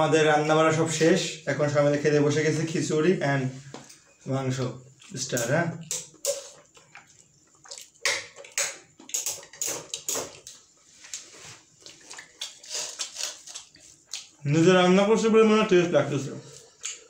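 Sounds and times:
chewing and lip smacking: 4.9 - 14.4.

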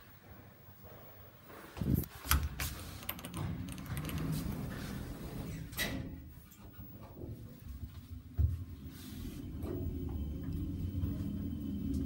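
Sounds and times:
elevator doors closing: 2.2 - 7.5, 8.2 - 12.0.

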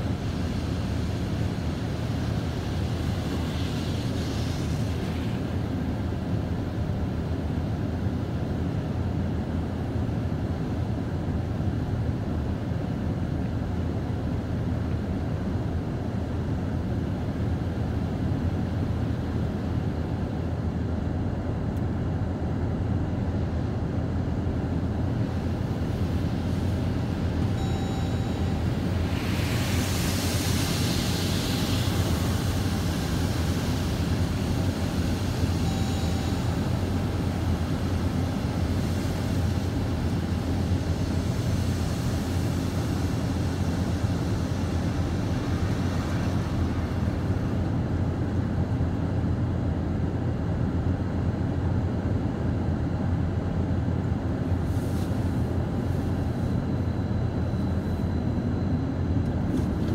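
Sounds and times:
car wash machinery and water rumble: 0.0 - 59.9
spray hissing on glass: 28.9 - 35.6.

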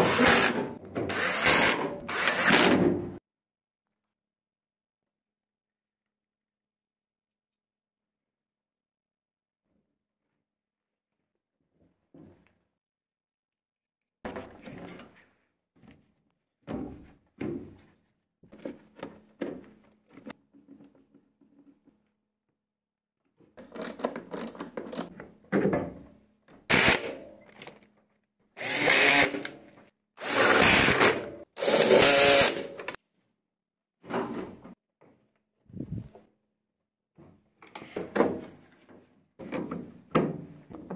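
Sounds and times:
power screwdriver running: 28.6 - 29.5, 30.2 - 33.0.

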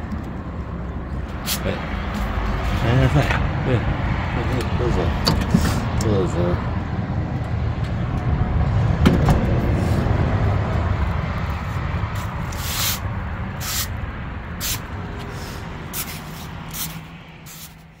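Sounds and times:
broom sweeping tiled floor: 11.7 - 13.0, 13.6 - 13.9, 14.6 - 18.0.

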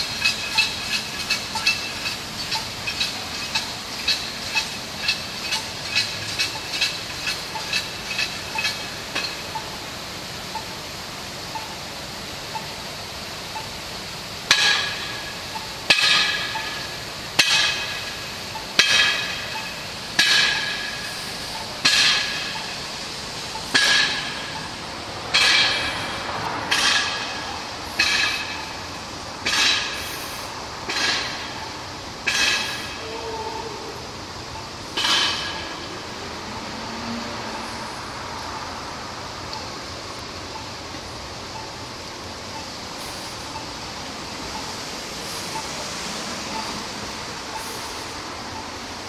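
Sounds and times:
ringing metal clangs: 23.6 - 28.8, 35.0 - 36.0.

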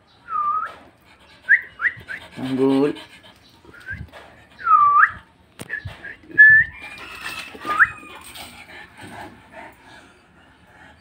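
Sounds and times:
dog whining: 6.5 - 8.8.

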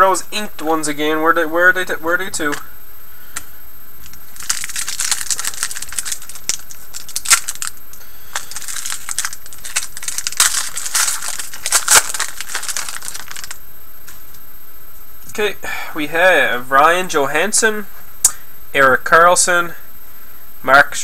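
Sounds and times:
wrapper crinkling and tearing: 4.0 - 13.6.

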